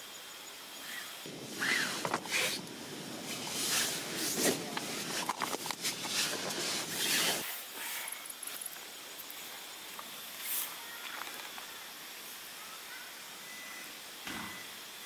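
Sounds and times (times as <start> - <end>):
fabric rustling: 1.4 - 8.1.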